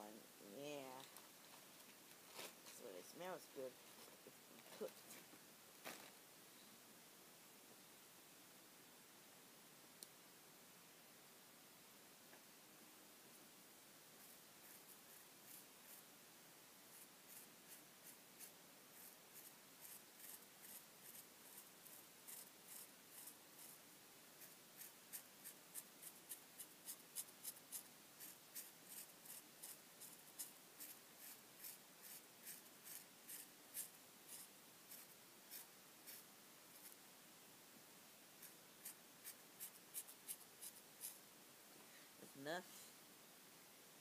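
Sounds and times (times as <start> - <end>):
marker tip rubbing on paper: 16.9 - 23.8, 24.4 - 36.2, 38.4 - 41.2.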